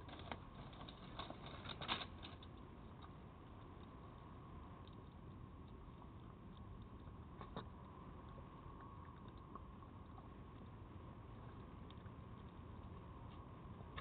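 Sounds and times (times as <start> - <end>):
fox eating with crunches: 0.0 - 3.9, 4.8 - 14.0
faint whine: 0.0 - 14.0.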